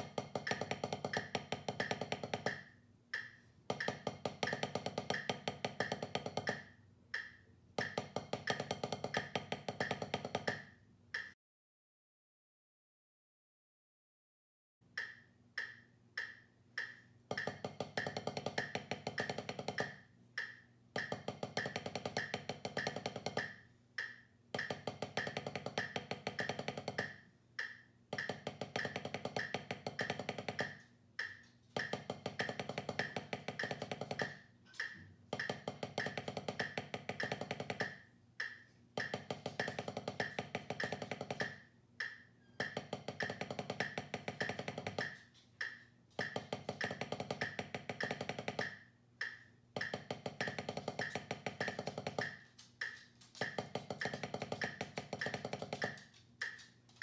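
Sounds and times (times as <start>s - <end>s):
drumsticks on practice pad: 0.0s - 11.4s, 14.9s - 57.0s
metronome clicking: 0.0s - 11.4s, 15.0s - 56.7s.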